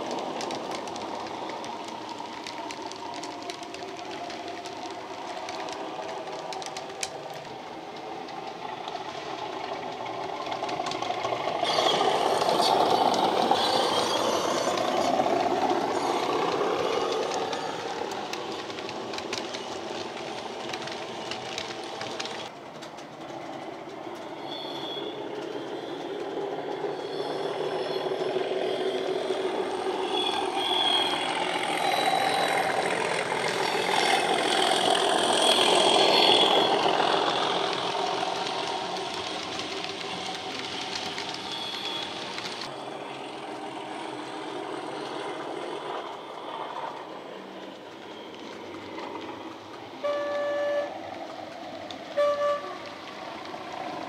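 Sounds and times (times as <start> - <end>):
model diesel locomotive engine sound: 0.0 - 54.0
train horn blasts: 50.0 - 51.0, 52.1 - 53.0.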